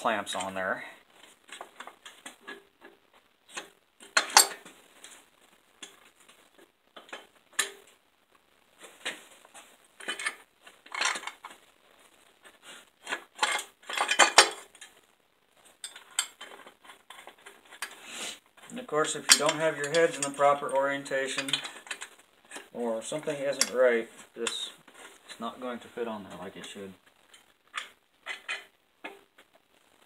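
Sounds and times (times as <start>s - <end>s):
metal parts clinking and clanking: 3.5s - 4.6s, 10.0s - 11.5s, 13.1s - 14.9s, 19.1s - 22.7s.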